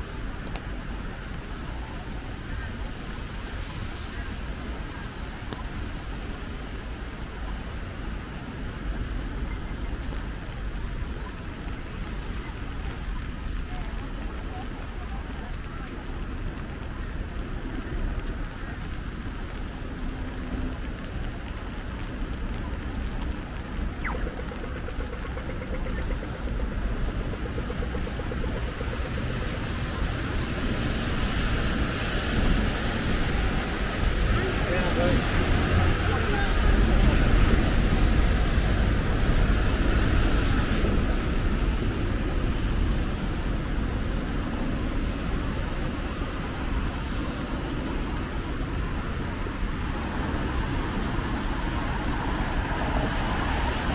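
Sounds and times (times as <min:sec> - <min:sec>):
deep traffic rumble: 0:00.0 - 0:53.9
rain hiss: 0:00.0 - 0:53.9
crossing signal ticking: 0:23.9 - 0:29.9.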